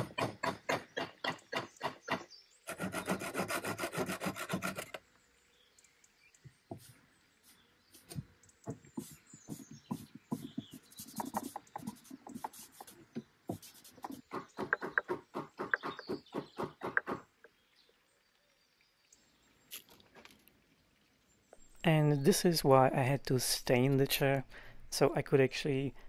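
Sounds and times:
hammer tapping wooden plugs: 13.2 - 17.2.

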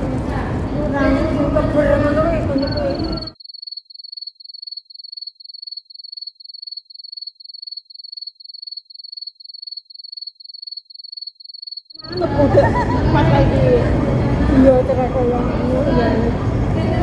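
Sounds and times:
cricket chirping: 2.5 - 12.3.

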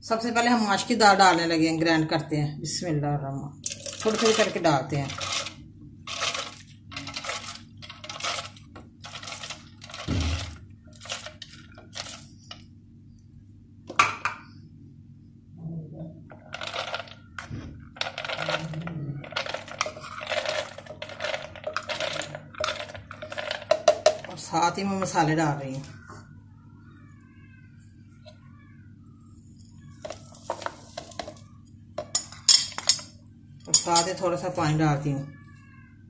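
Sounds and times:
lentils pouring into blender jar: 3.7 - 12.3, 16.4 - 17.2, 18.0 - 24.3.

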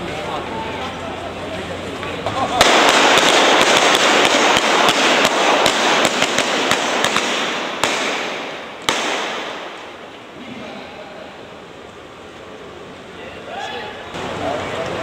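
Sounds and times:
dense rush of noise: 0.0 - 15.0
guns firing blanks: 2.3 - 10.4.

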